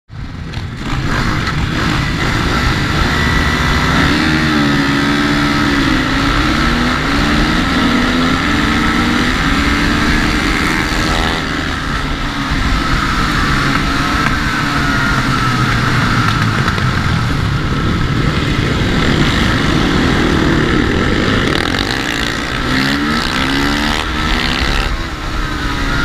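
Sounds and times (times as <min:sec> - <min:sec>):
motorcycle engine idling: 0:13.7 - 0:21.1.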